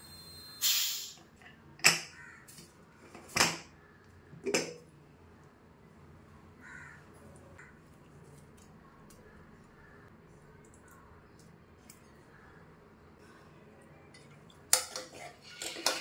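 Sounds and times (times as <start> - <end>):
crow cawing: 2.1 - 2.5, 6.6 - 7.0.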